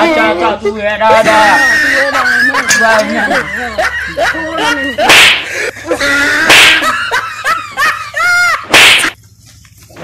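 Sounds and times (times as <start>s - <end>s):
loud sharp slaps: 5.1s - 5.5s, 6.5s - 7.0s, 8.7s - 9.2s.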